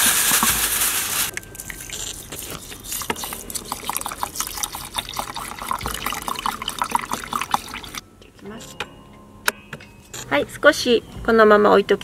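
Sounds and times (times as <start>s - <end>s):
water pouring into a pot: 0.0s - 8.0s.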